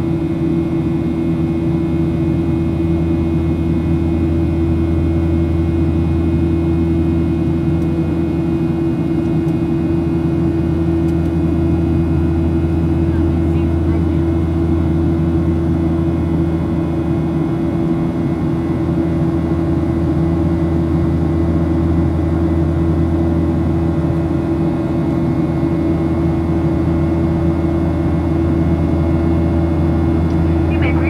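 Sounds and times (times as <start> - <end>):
airplane cabin drone: 0.0 - 31.0.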